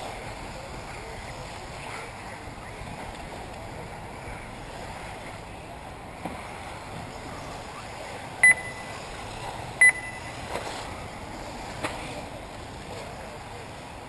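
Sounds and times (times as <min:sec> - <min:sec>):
short electronic beeps: 0:08.4 - 0:09.0, 0:09.8 - 0:10.5.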